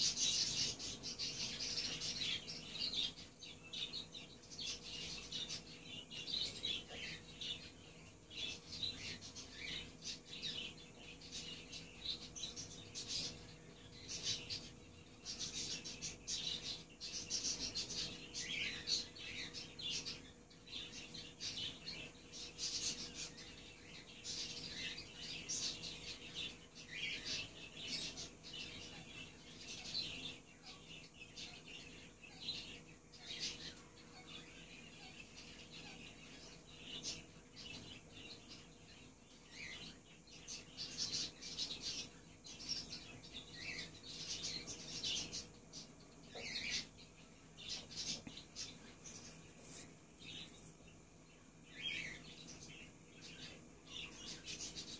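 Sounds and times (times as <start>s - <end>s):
faint steady hum: 0.0s - 54.9s
parakeets chirping and chattering: 0.0s - 54.9s.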